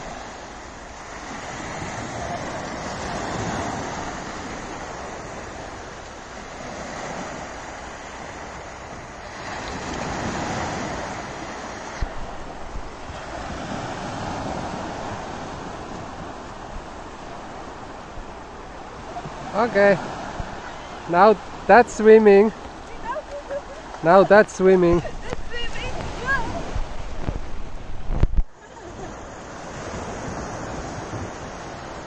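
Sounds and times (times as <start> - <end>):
wind on microphone: 0.0 - 5.8, 22.6 - 32.0
waves breaking on beach: 0.0 - 32.0.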